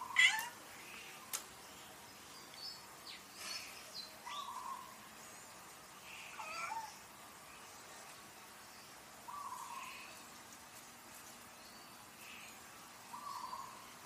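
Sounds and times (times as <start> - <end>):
cat meowing: 0.1 - 0.6, 6.3 - 7.0.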